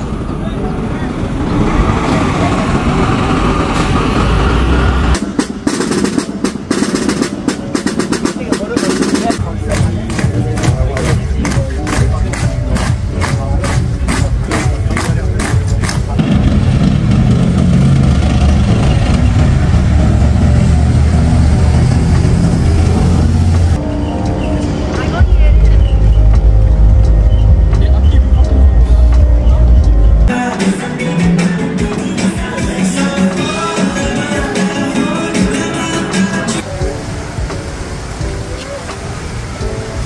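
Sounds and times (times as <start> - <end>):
vehicle engine droning: 0.0 - 5.4, 9.4 - 30.3
snare drum rhythm: 5.2 - 16.6
tracked vehicles driving past: 12.2 - 25.0.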